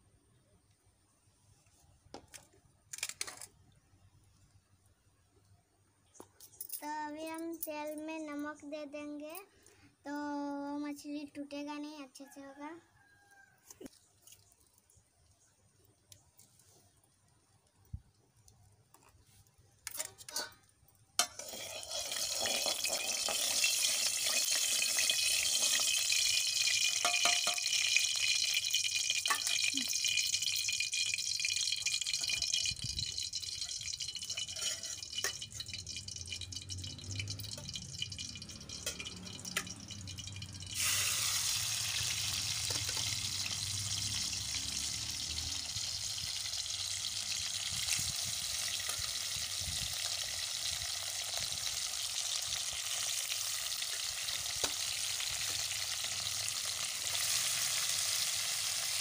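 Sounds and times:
fish sizzling in hot oil: 0:21.2 - 0:59.0.

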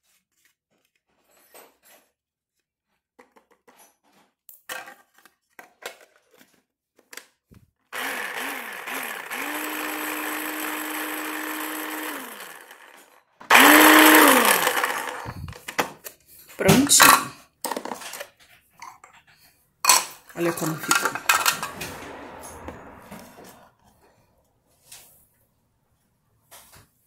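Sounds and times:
electric food chopper motor: 0:07.9 - 0:15.6.

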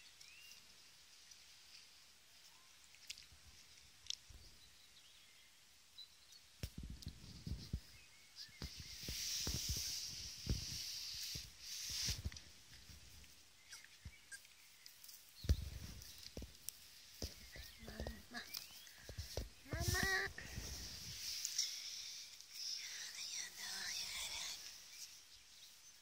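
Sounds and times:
faint outdoor hiss: 0:00.0 - 0:26.0
puppies rustling in grass: 0:06.7 - 0:26.0.

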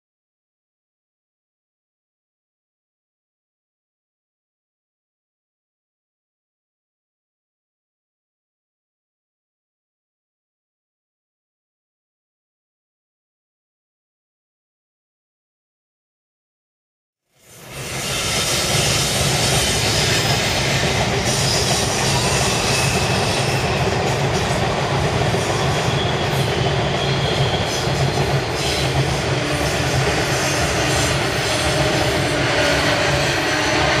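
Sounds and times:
freight train rumbling and clattering: 0:17.4 - 0:34.0
high wheel squeal: 0:17.5 - 0:24.6, 0:25.4 - 0:34.0.

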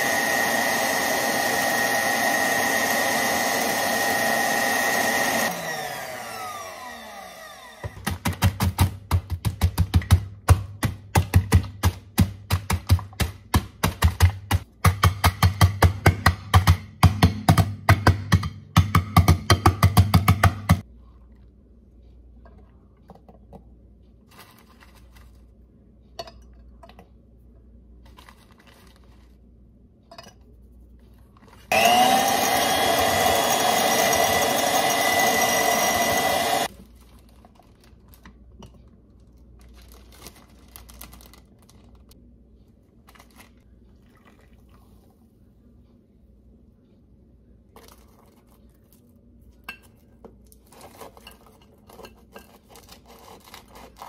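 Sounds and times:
electric mixer motor whining: 0:00.0 - 0:08.0, 0:31.7 - 0:36.7
plastic bag handling: 0:39.2 - 0:42.2.

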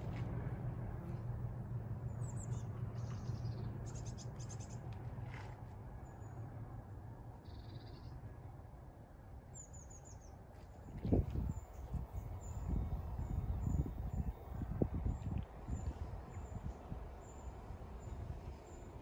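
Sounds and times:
diesel train rumble: 0:00.0 - 0:05.3, 0:11.1 - 0:19.0.

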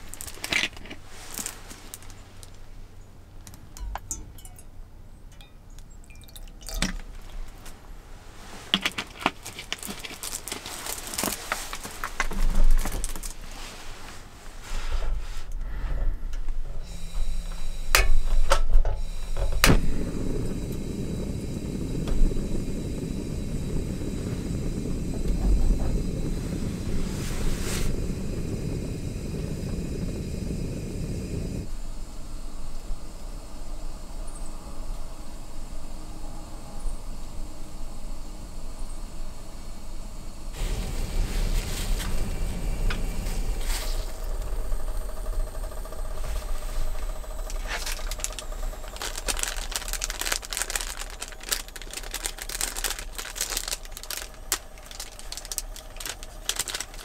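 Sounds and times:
light clinks and bottle handling: 0:03.5 - 0:07.4
water pouring into metal cup: 0:06.0 - 0:07.4
gas burner flame rushing: 0:06.8 - 0:36.2, 0:36.8 - 0:57.0
stove igniter clicking: 0:40.7 - 0:49.5.

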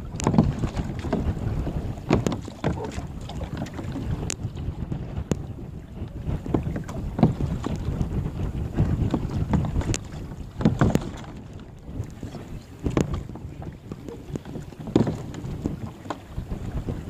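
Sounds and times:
water splashing against kayaks: 0:00.0 - 0:17.0
wind buffeting microphone: 0:00.0 - 0:17.0.

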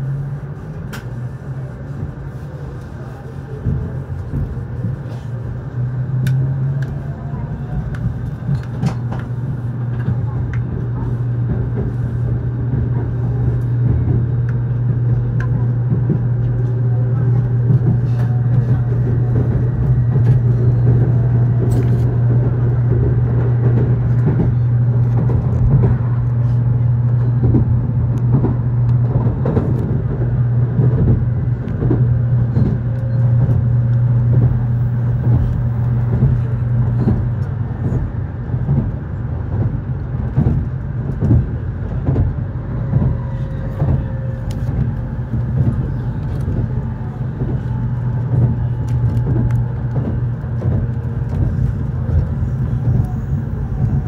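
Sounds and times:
train running gear hum: 0:00.0 - 0:54.0.

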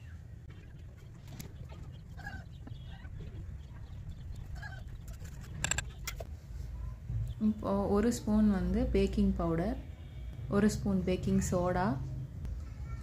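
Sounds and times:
low background rumble: 0:00.0 - 0:13.0
chickens clucking: 0:00.5 - 0:06.3.

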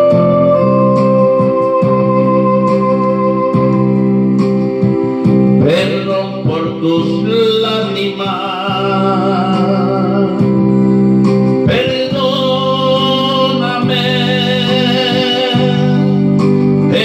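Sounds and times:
electronic keyboard accompaniment: 0:00.0 - 0:17.0
man singing into microphone: 0:05.6 - 0:17.0.

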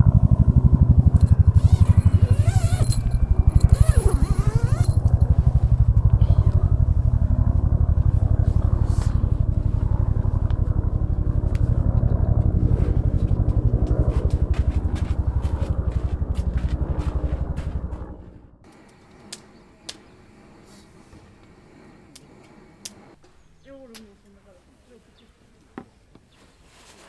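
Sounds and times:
helicopter rotor beating: 0:00.0 - 0:23.2.

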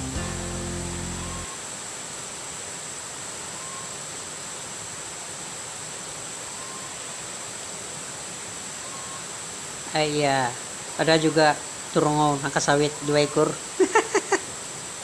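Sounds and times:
constant high drone: 0:00.0 - 0:01.7
outdoor background hiss: 0:00.0 - 0:15.0.

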